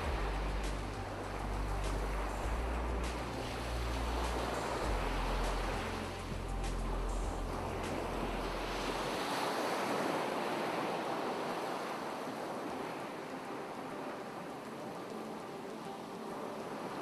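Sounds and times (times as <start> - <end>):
low hum: 0.0 - 9.1
ocean wave washing in: 0.0 - 17.0.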